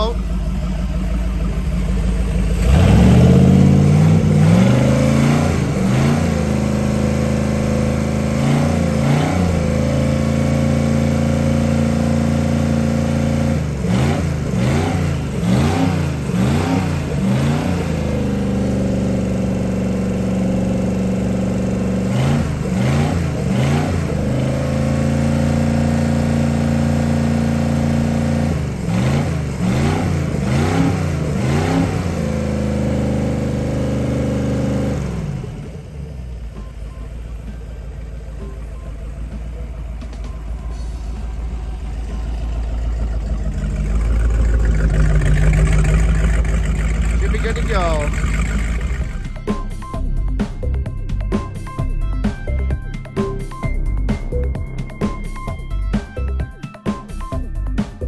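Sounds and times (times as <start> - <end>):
engine idling and revving: 0.0 - 58.0.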